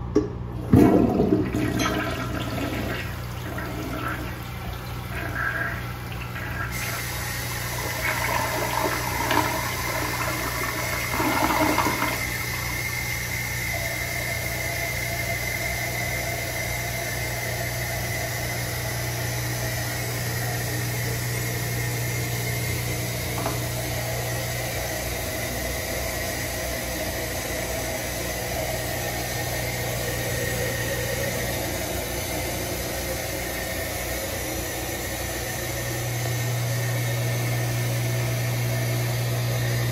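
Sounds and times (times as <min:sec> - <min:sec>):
toilet water gurgling: 0:00.0 - 0:39.9
toilet tank refilling hiss: 0:00.6 - 0:39.9.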